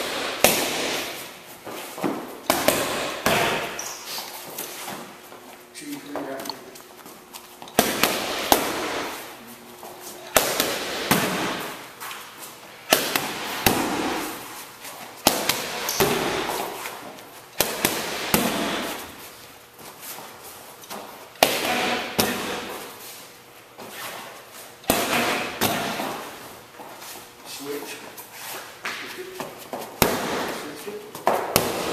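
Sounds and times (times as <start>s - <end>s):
boxing gloves slapping focus mitts: 0.0s - 1.3s, 2.0s - 3.8s, 7.7s - 9.2s, 10.2s - 11.8s, 12.8s - 14.5s, 15.2s - 16.9s, 17.6s - 19.1s, 20.9s - 22.9s, 24.8s - 26.3s, 28.8s - 31.9s.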